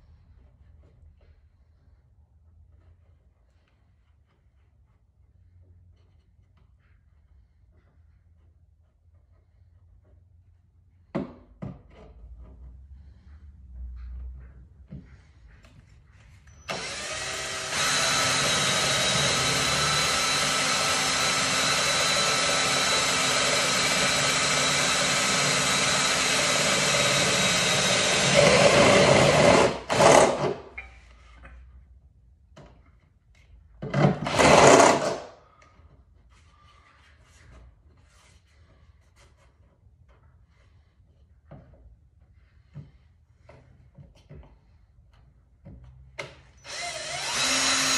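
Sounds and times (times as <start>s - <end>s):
drill boring into sheet metal: 16.7s - 30.8s, 34.2s - 35.3s, 46.6s - 47.9s.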